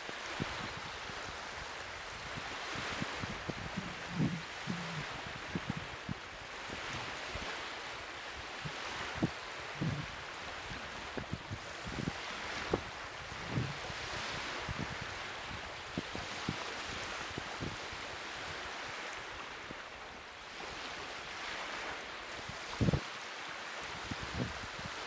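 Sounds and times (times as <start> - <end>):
wind over water: 0.0 - 25.0
wind buffeting microphone: 0.4 - 7.5, 8.6 - 17.8, 22.4 - 23.1.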